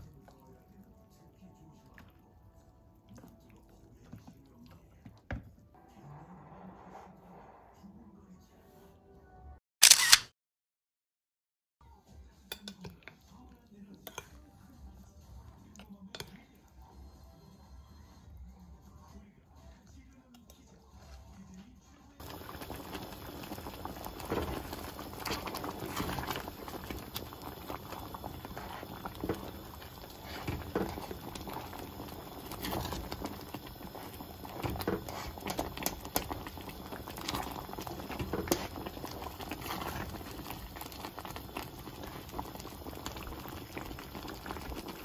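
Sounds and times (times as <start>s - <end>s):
soup bubbling and popping: 0.0s - 5.4s, 22.2s - 45.0s.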